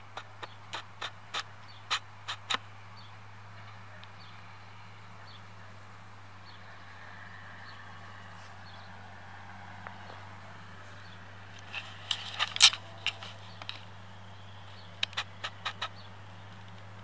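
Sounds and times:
distant tractor drone: 0:00.0 - 0:17.0
sharp clicks: 0:11.5 - 0:14.0, 0:14.8 - 0:17.0.

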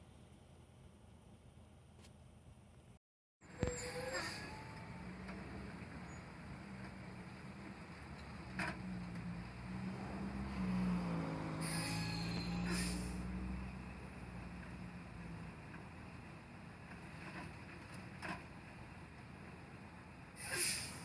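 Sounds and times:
cars driving past: 0:04.7 - 0:15.9.

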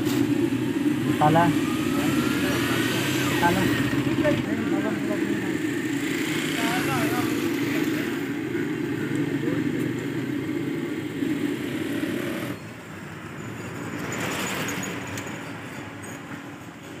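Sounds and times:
vehicle passing by: 0:00.0 - 0:12.6
engine hum: 0:00.0 - 0:13.3.

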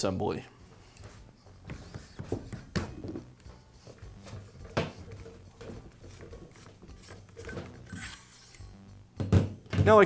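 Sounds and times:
metal clicks and scrapes: 0:06.1 - 0:08.6.

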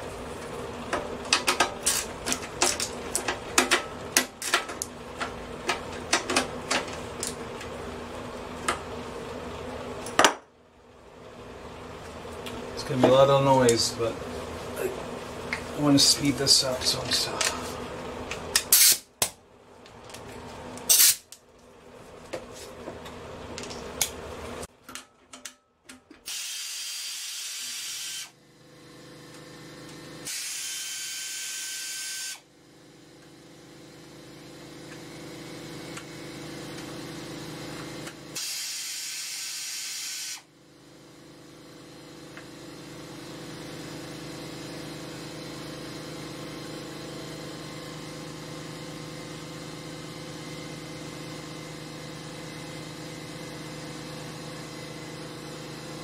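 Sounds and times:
steady machine hum: 0:00.0 - 0:56.0
pneumatic wrench whirring: 0:18.6 - 0:19.1, 0:20.9 - 0:21.3, 0:26.2 - 0:28.4, 0:30.2 - 0:32.4, 0:38.4 - 0:40.5.

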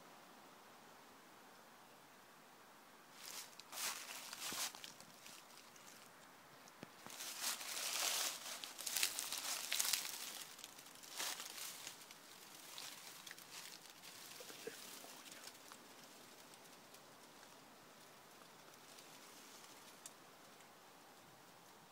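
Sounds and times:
dry leaves crunching underfoot: 0:03.2 - 0:06.2, 0:06.9 - 0:16.9.

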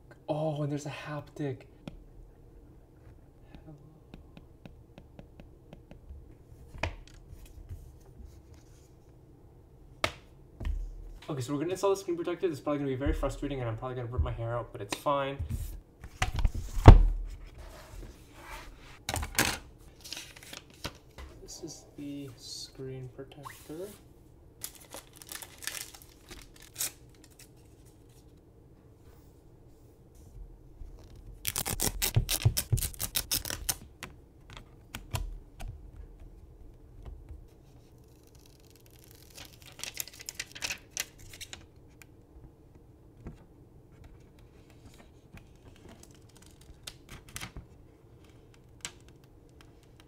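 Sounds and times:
film and packaging rustling: 0:24.6 - 0:28.4, 0:31.0 - 0:33.9, 0:37.6 - 0:41.7.

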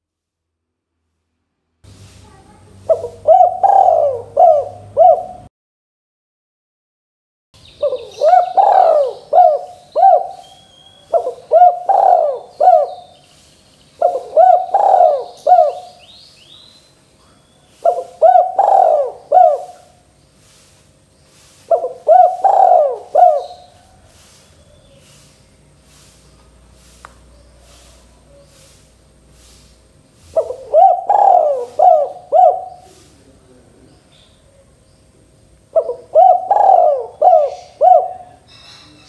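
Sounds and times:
dove cooing: 0:02.8 - 0:05.5, 0:07.8 - 0:13.2, 0:14.0 - 0:16.1, 0:17.2 - 0:20.1, 0:21.6 - 0:25.2, 0:30.2 - 0:33.6, 0:35.7 - 0:38.5
faint high chirping: 0:07.6 - 0:19.8.

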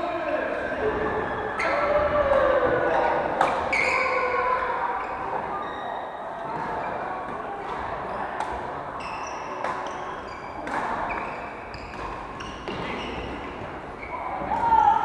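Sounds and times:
sports shoes squeaking on floor: 0:03.6 - 0:04.4, 0:09.0 - 0:14.6
rackets striking shuttlecocks: 0:09.6 - 0:13.7.

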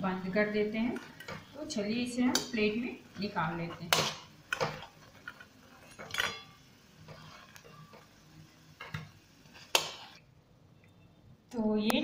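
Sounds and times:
spoon scraping frying pan: 0:02.2 - 0:10.2.

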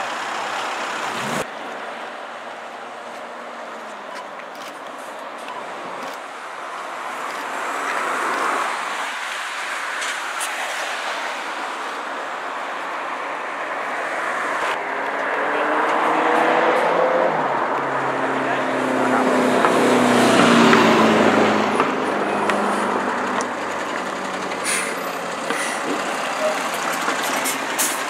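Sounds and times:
vehicle engine accelerating: 0:00.0 - 0:01.6, 0:14.7 - 0:28.0
road traffic going by: 0:00.0 - 0:28.0.

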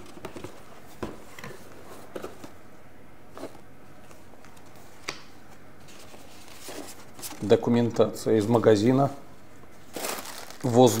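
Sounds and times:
faint room hiss: 0:00.0 - 0:11.0
paper rustling: 0:05.8 - 0:07.6, 0:09.9 - 0:11.0.

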